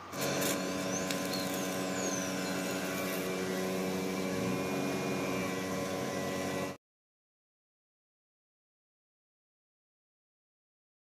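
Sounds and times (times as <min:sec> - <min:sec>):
arc welding buzz and crackle: 0:00.0 - 0:06.8.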